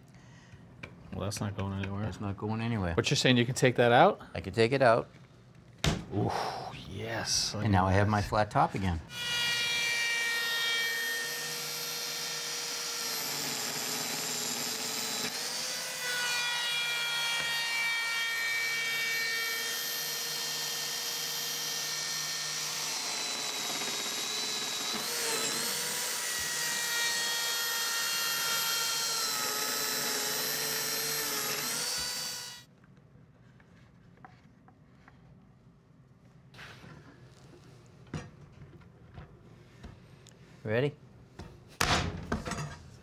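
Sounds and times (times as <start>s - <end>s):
power tool motor whining: 19.4s - 32.6s.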